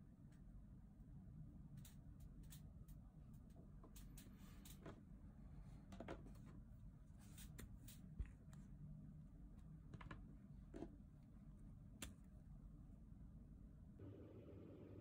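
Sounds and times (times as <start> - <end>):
faint plastic clicks and taps: 9.6 - 11.0.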